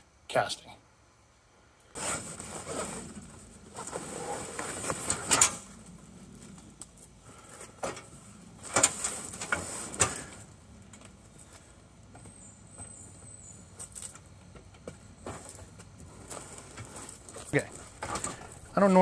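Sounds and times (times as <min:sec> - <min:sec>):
cardboard box scraping: 0:02.0 - 0:05.1.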